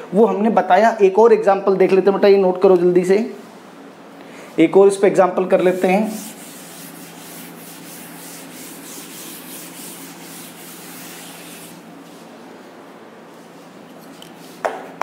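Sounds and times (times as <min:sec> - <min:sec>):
cloth wiping chalkboard: 0:05.4 - 0:12.5.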